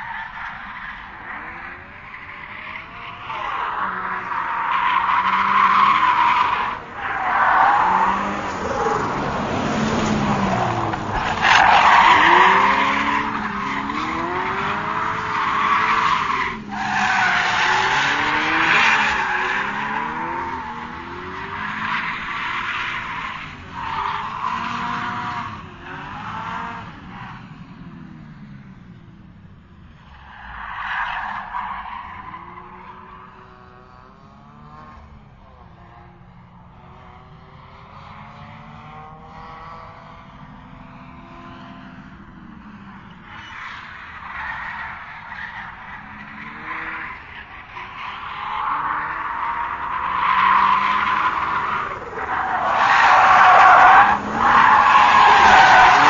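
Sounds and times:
tires squealing: 0.0s - 28.9s, 29.9s - 56.0s
racing car engine revving: 1.1s - 29.3s, 31.5s - 56.0s.

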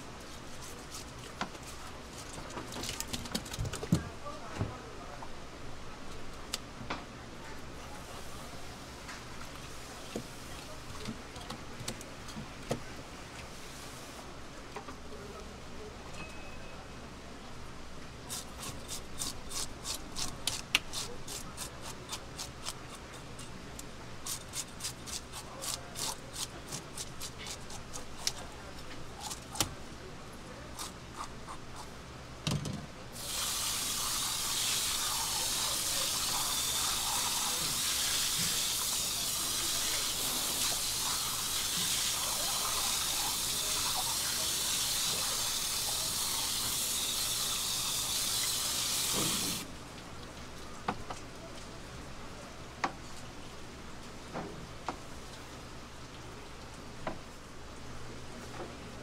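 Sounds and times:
fish scaler scraping scales: 24.2s - 28.4s
running water pouring: 33.2s - 49.6s.

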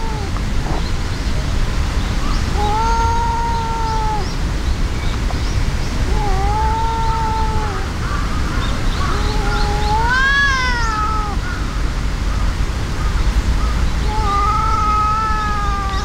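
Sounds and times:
cats yowling: 0.0s - 0.9s, 2.5s - 4.3s, 6.0s - 8.1s, 9.0s - 11.6s, 14.0s - 16.0s.

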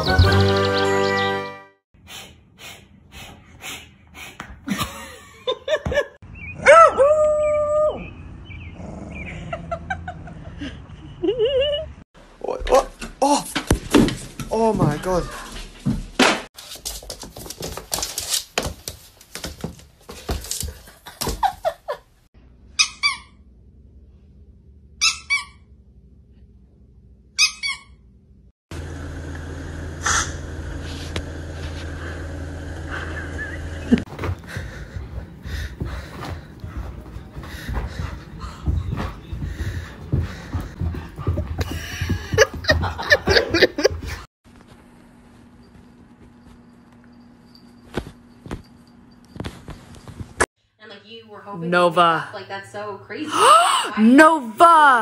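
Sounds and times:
dog howling: 6.6s - 8.1s.

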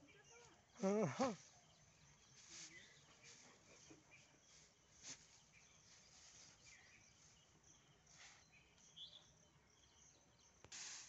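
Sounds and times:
faint chirps: 0.0s - 11.0s
dry straw rustling: 2.2s - 3.7s, 4.5s - 7.4s.

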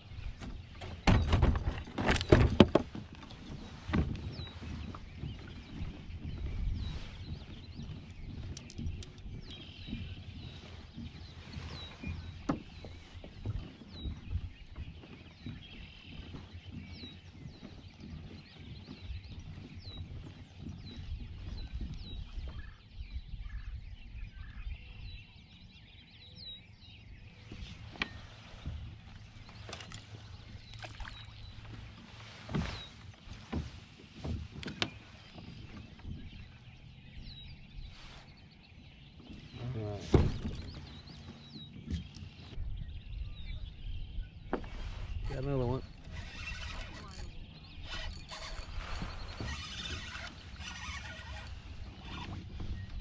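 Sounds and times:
low uneven rumble: 0.0s - 23.2s
bird chirps: 3.7s - 53.0s.

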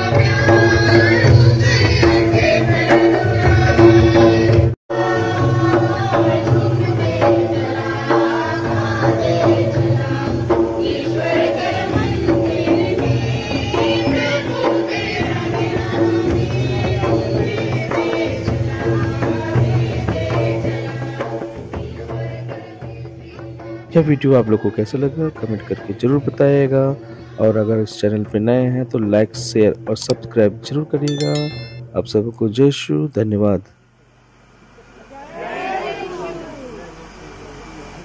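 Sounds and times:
people singing: 0.0s - 24.8s.

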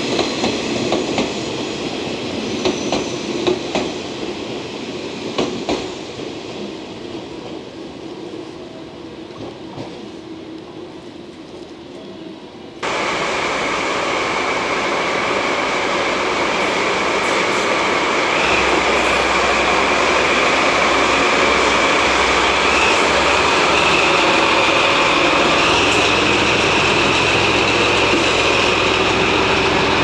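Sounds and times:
distant train: 0.0s - 30.0s
diesel locomotive running past: 12.8s - 30.0s.

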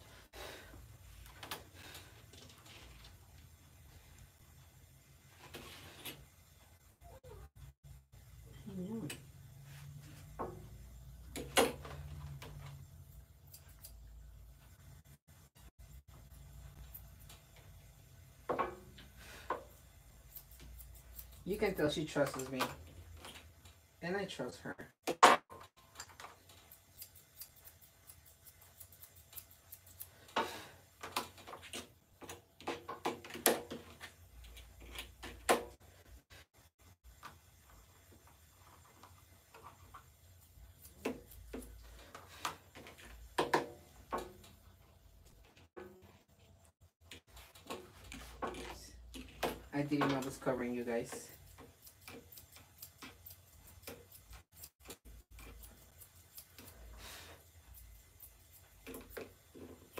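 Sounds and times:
grooming tools clicking: 11.3s - 14.1s, 19.6s - 23.7s, 25.9s - 30.4s, 47.1s - 59.9s.

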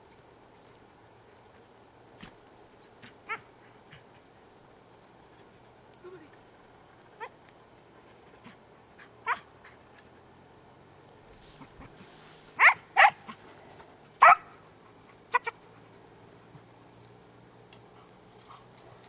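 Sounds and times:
dogs yelping: 3.0s - 4.1s, 8.4s - 10.2s, 12.6s - 13.5s, 14.1s - 16.0s.

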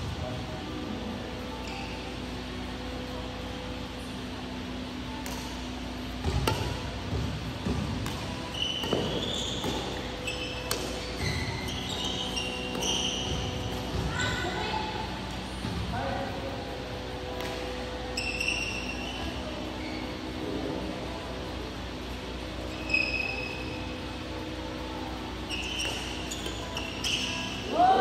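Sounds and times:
steady hum: 0.0s - 28.0s
shoes squeaking on court: 1.5s - 2.4s, 5.2s - 14.6s, 17.4s - 20.8s, 22.6s - 24.3s, 25.4s - 27.7s
racquets hitting shuttlecock: 5.2s - 14.1s.

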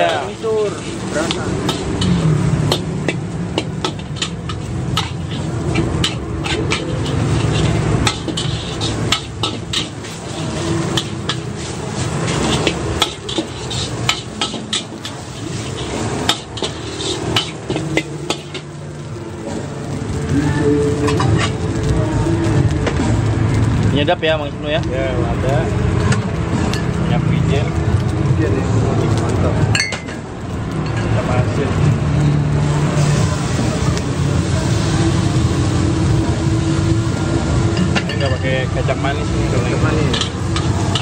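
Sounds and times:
metal spatula scraping a wok: 0.0s - 18.8s, 20.9s - 21.9s
hiss of frying: 0.0s - 41.0s.

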